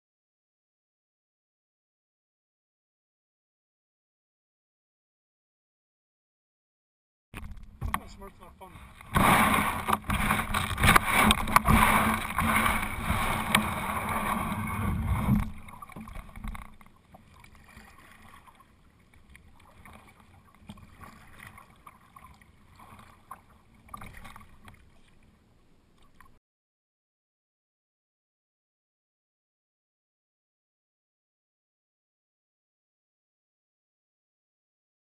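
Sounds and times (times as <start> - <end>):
kayak rustling and knocking: 7.4 - 22.1
paddle strokes in water: 7.4 - 26.4.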